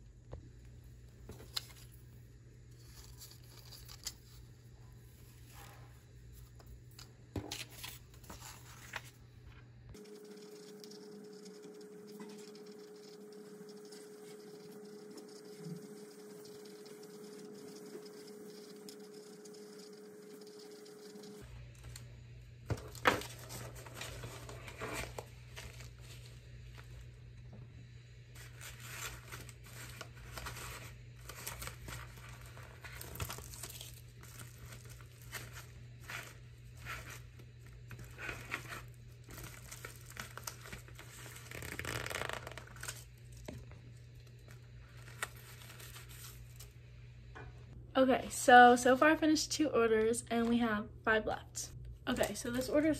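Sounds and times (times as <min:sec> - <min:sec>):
steady low hum: 0:00.0 - 0:41.5
plastic packaging crinkling: 0:28.4 - 0:37.3, 0:37.9 - 0:43.6.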